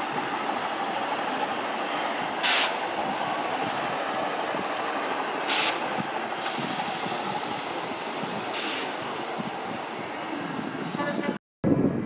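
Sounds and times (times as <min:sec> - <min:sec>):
diesel train engine running: 0:00.0 - 0:12.0
sharp air hisses: 0:02.4 - 0:02.8, 0:05.0 - 0:05.8, 0:06.4 - 0:10.0.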